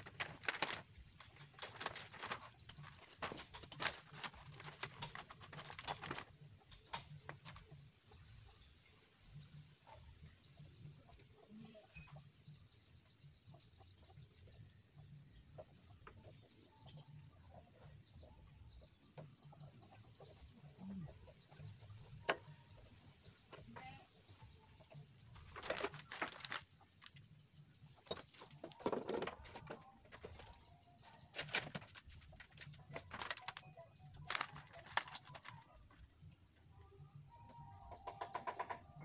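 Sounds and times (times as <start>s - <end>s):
tools scraping and rustling: 0.0s - 7.6s.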